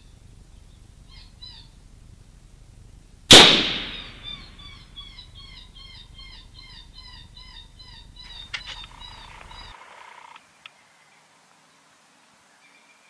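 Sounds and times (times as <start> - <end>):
rifle shot echoing: 3.3 - 4.6.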